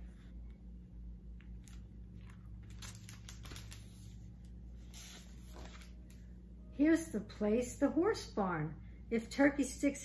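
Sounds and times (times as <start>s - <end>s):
book pages rustling: 1.4s - 6.2s.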